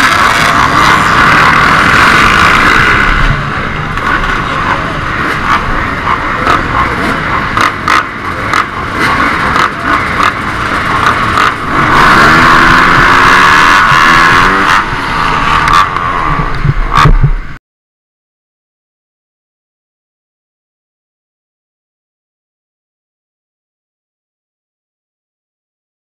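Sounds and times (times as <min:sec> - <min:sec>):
dirt bike engine revving: 0:00.0 - 0:17.1.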